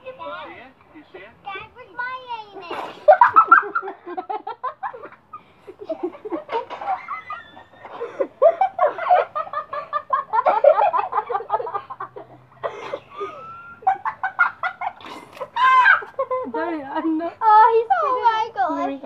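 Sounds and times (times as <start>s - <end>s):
children laughing and giggling: 1.8s - 19.0s.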